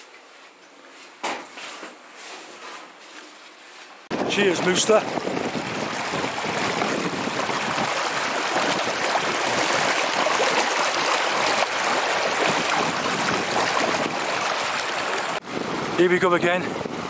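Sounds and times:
stream rushing over rocks: 4.1 - 15.4.

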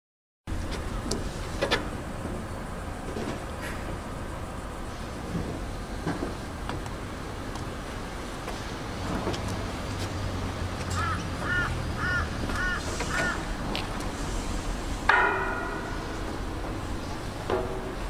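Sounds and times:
bird calling: 10.9 - 13.6
loud metal clang: 15.0 - 16.5, 17.4 - 18.0.

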